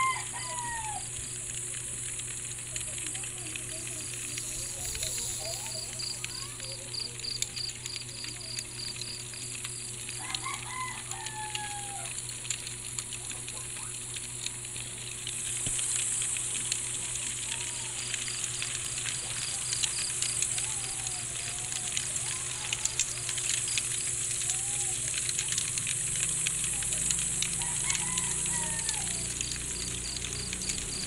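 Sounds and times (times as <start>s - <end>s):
wavering animal calls: 0.0s - 1.4s, 17.5s - 23.7s, 26.7s - 29.9s
high insect hiss: 0.0s - 12.1s, 14.8s - 31.0s
campfire crackling: 0.0s - 31.0s
crickets chirping: 0.0s - 31.0s.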